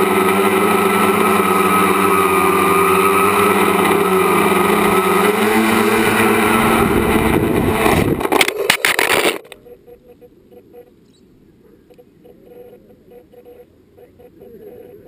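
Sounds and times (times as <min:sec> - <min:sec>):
drone motors whining: 0:00.0 - 0:09.6
drone clattering on ground: 0:04.8 - 0:09.6.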